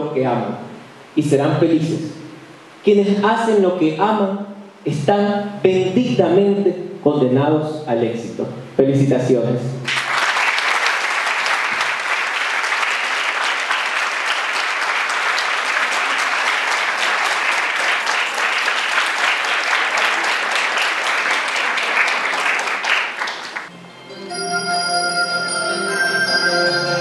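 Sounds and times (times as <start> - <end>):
large audience applauding: 9.9 - 23.7.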